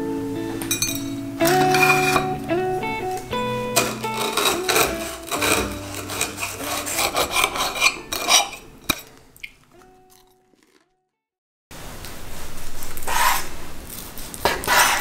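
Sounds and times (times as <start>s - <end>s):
knife sawing through toast: 3.8s - 8.6s.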